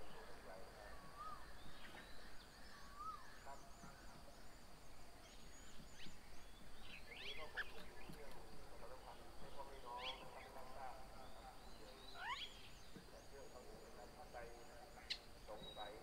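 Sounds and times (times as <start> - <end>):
high squeaky bird chirps: 12.1 - 12.7.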